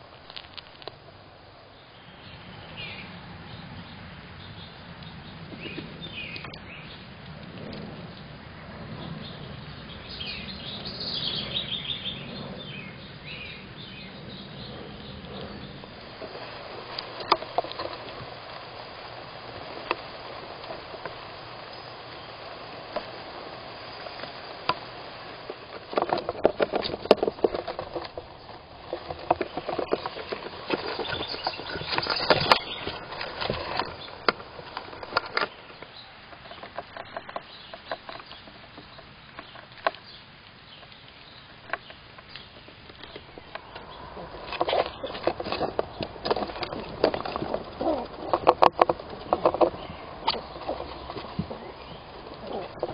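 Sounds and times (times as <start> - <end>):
faint steady hiss: 0.0 - 52.9
squirrel claws scratching wood: 14.8 - 18.7, 24.1 - 35.6, 41.7 - 52.9.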